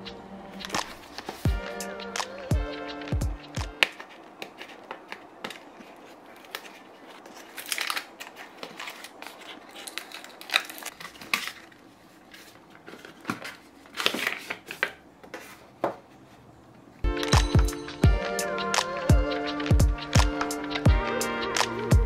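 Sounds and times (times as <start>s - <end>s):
paper rustling and scraping: 0.5s - 1.5s, 3.7s - 16.4s
seal being peeled: 3.8s - 11.9s.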